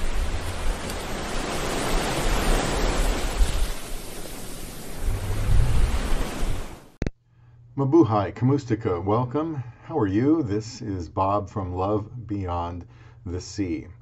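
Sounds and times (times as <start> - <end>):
waves breaking: 0.0 - 7.0.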